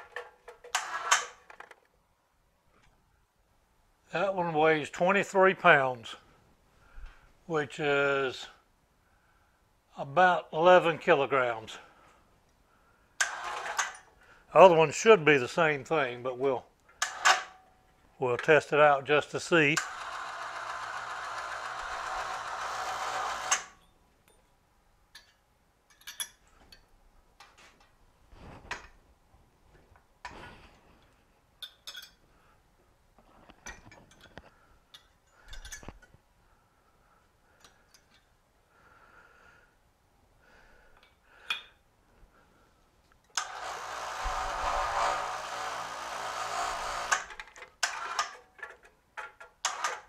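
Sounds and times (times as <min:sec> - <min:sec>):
electric hoist motor running: 0:00.7 - 0:01.4, 0:13.2 - 0:14.0, 0:19.8 - 0:23.8, 0:43.4 - 0:48.4
light metal clicks and knocks: 0:25.1 - 0:27.9, 0:31.6 - 0:32.2.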